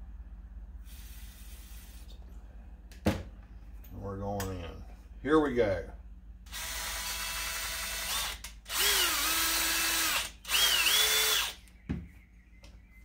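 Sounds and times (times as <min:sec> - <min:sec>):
drill motor whine: 0:06.5 - 0:11.6.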